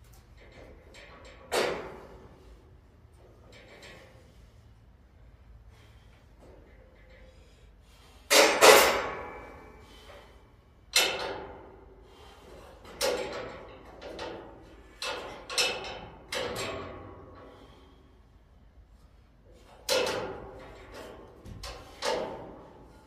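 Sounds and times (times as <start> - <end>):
metallic clanks on steel racking: 0.1 - 4.5, 8.3 - 17.8, 19.5 - 23.0.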